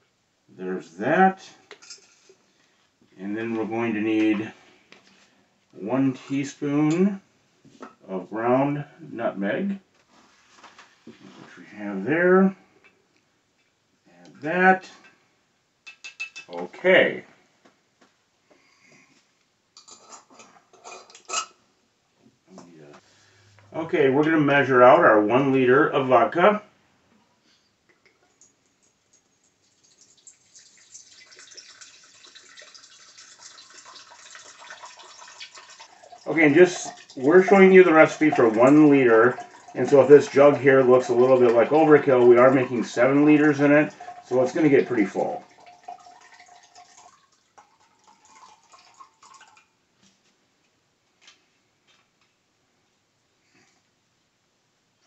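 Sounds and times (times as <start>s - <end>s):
liquid pouring into a jug: 29.6s - 49.7s.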